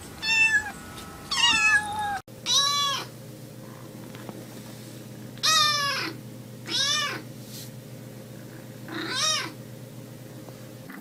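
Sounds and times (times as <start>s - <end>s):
kitten meowing: 0.2s - 3.1s, 5.4s - 7.2s, 8.9s - 9.6s.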